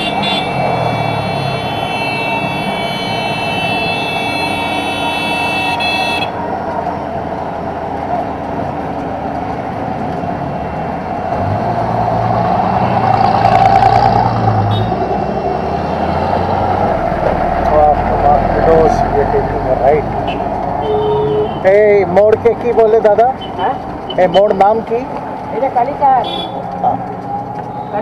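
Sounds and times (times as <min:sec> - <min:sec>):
road and wind noise: 0:00.0 - 0:28.0
vehicle passing: 0:05.8 - 0:20.8, 0:21.6 - 0:28.0.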